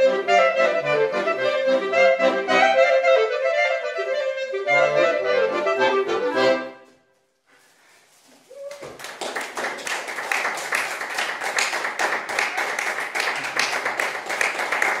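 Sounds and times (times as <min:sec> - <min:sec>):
music: 0:00.0 - 0:07.1
audience applauding: 0:08.6 - 0:15.0.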